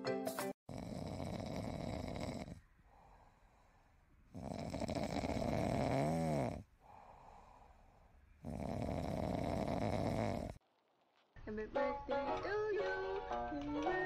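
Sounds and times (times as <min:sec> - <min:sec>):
cat snoring: 0:00.7 - 0:03.6, 0:04.3 - 0:07.8, 0:08.4 - 0:10.6.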